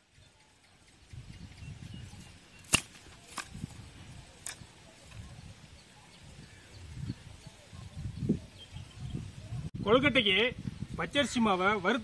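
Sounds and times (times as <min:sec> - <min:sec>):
firewood sticks clacking: 0:02.6 - 0:05.2.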